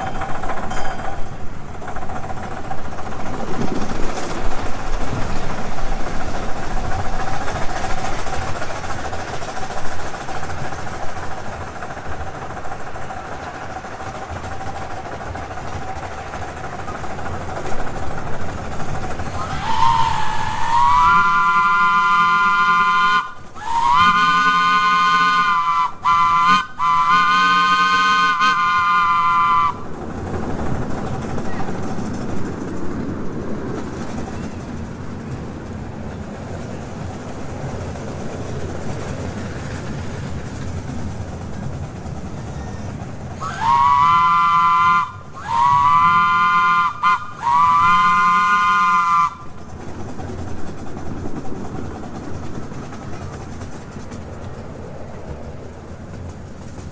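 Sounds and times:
miniature train rumbling on track: 0.0 - 56.9
chime train whistle blasts: 19.4 - 29.8, 43.4 - 49.4.

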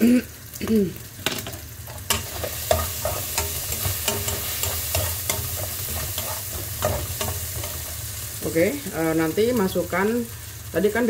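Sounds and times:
food sizzling in oil: 0.0 - 11.0
metal spatula scraping a wok: 1.9 - 7.9.

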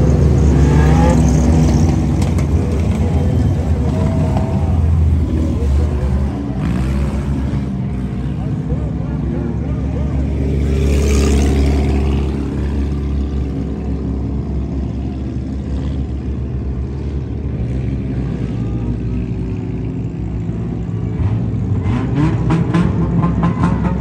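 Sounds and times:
voices: 0.0 - 16.0
race car engines: 0.0 - 24.0.

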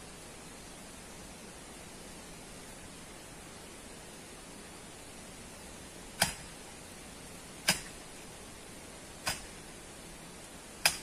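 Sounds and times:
steady hiss: 0.0 - 11.0
sharp clicks: 7.6 - 8.0, 9.2 - 9.6, 10.8 - 11.0.

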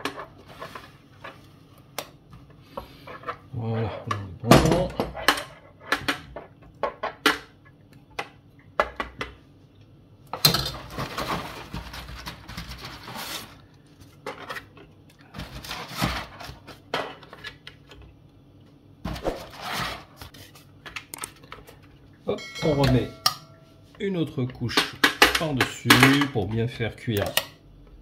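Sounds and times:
pasta sheets rustling and clacking: 0.0 - 1.8, 10.7 - 17.8.

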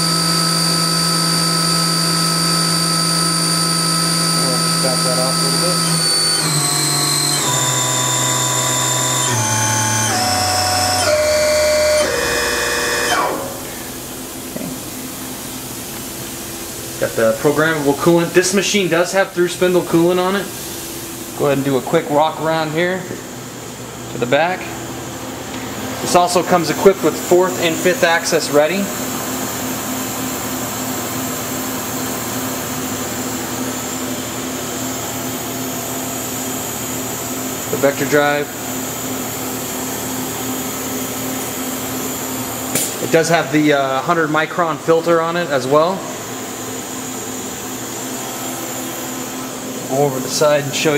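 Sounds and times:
spindle electric whine: 0.0 - 23.1
machine whir and hum: 0.0 - 50.9.

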